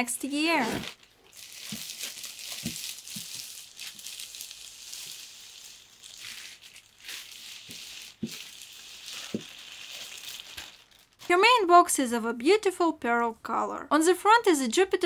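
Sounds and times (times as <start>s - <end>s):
plastic bag crinkling: 0.3s - 11.7s.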